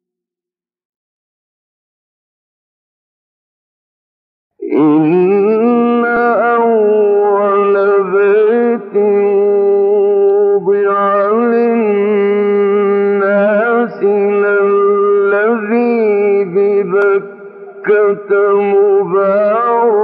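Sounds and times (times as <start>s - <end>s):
man chanting recitation: 4.6s - 20.0s.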